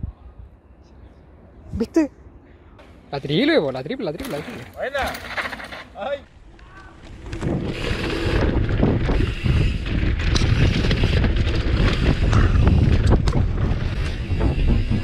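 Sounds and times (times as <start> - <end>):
tyres rolling over dirt: 4.1 - 15.0
bike clicks and knocks: 4.2 - 15.0
wind on camera microphone: 6.9 - 15.0.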